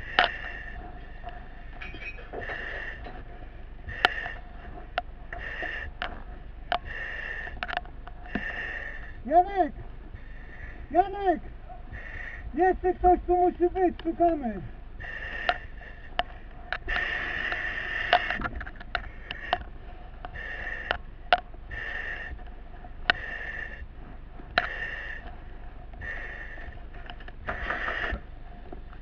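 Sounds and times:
breathing through mask valve: 0.0s - 9.2s, 11.9s - 12.6s, 15.0s - 21.1s, 21.7s - 22.4s, 23.1s - 23.9s, 24.5s - 28.4s
gear clicking and knocking: 0.0s - 29.0s.

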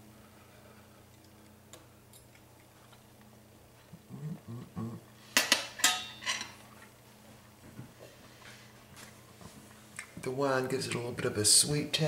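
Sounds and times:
person murmuring while tasting: 3.9s - 5.2s
metal kitchen utensils clinking: 5.4s - 6.6s.

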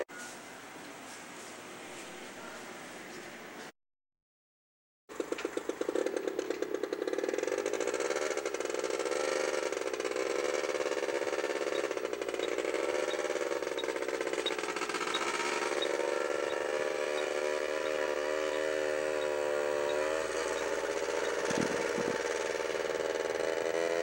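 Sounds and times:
vehicle engine starting and running: 5.1s - 24.0s
faint ticking: 11.4s - 23.5s.

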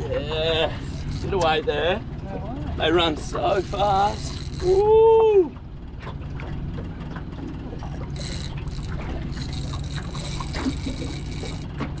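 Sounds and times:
outboard motor idling: 0.0s - 12.0s
water sloshing against hull: 0.0s - 12.0s
fishing reel clicks: 0.8s - 1.6s, 3.4s - 4.8s, 8.1s - 12.0s.

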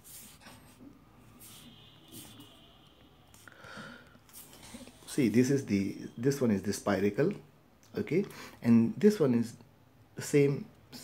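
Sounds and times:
person breathing softly: 3.4s - 5.1s.

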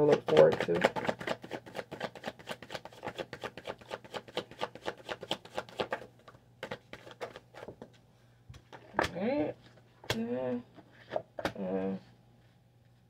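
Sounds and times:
cards being shuffled: 0.0s - 7.9s.

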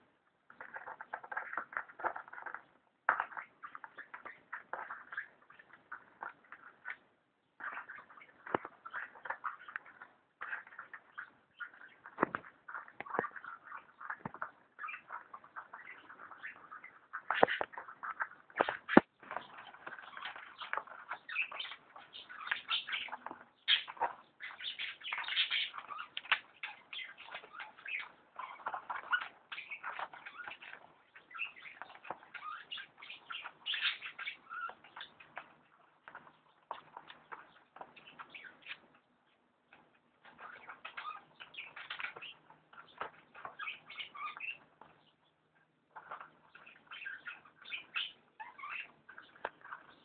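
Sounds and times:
scratching and scrabbling: 0.5s - 7.0s, 7.6s - 38.9s.

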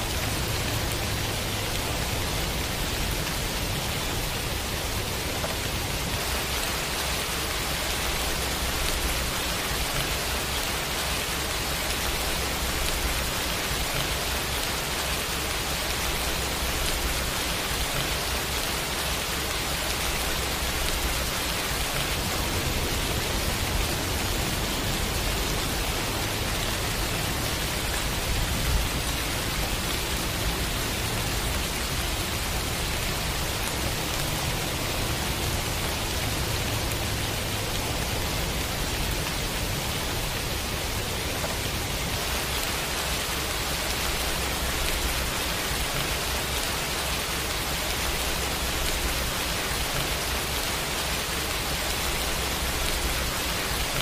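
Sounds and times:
rain falling on leaves: 0.0s - 54.0s.

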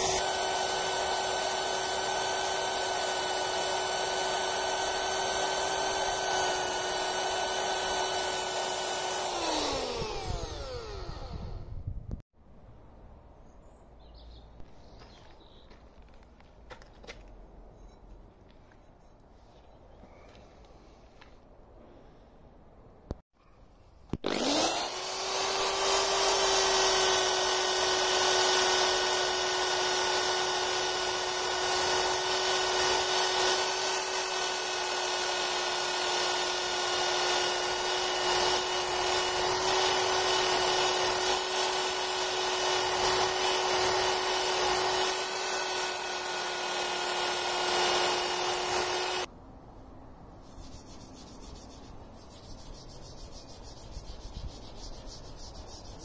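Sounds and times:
drill spinning wire brush on metal: 0.0s - 11.7s, 24.2s - 49.3s.

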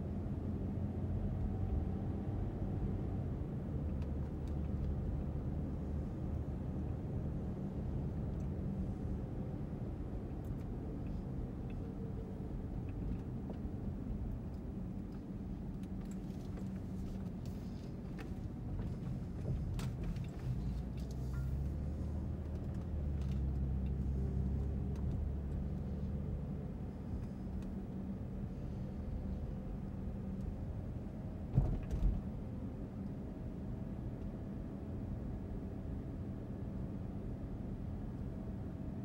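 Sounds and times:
car engine and tyre rumble: 0.0s - 39.0s.

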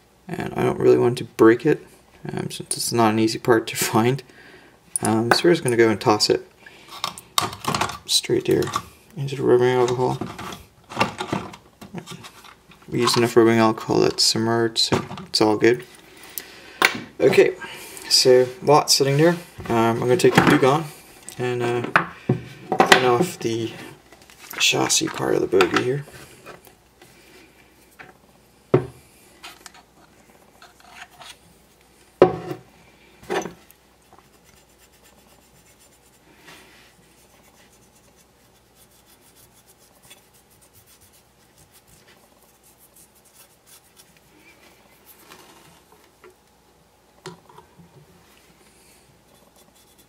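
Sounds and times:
cotton swab scratchy rubbing: 34.0s - 45.3s, 49.3s - 50.0s.

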